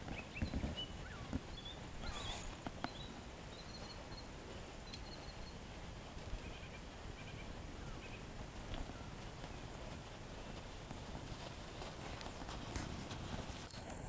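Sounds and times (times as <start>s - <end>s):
small birds chirping: 0.0s - 5.7s
horse hooves on gravel: 0.0s - 14.0s.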